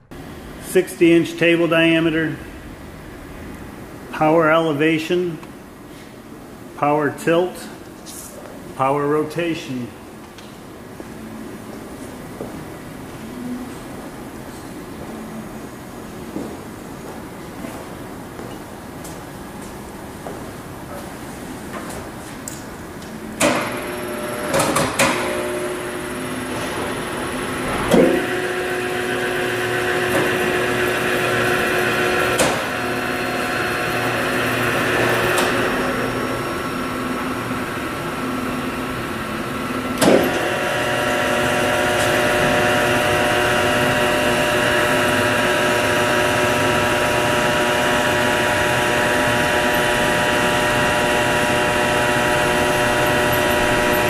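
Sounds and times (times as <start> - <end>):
electric motor humming and whining: 23.4 - 54.0.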